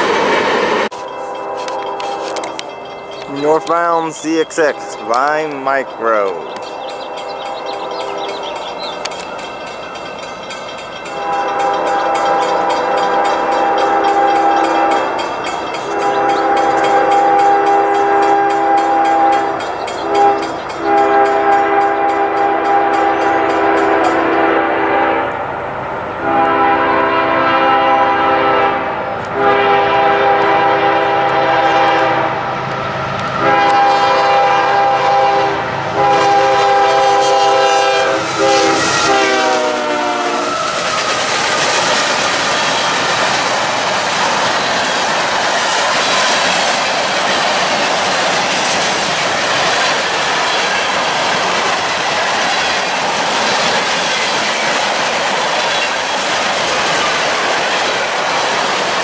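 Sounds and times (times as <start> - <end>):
locomotive horn blasts: 0.9 - 2.6, 3.4 - 5.5, 11.1 - 15.1, 15.9 - 25.3, 26.2 - 32.4, 33.2 - 40.6
crossing bell ringing: 0.9 - 24.4.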